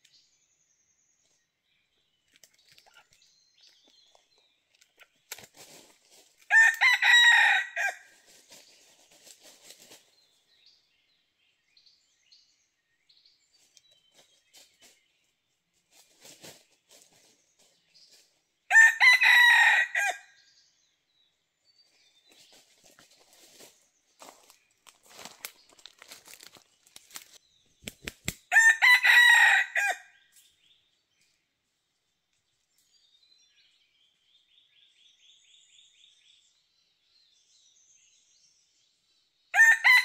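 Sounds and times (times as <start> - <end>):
rooster crowing: 6.5 - 8.1, 18.7 - 20.3, 28.5 - 30.2, 39.6 - 40.0
faint rustles: 8.2 - 10.3, 15.8 - 18.4, 22.3 - 27.4.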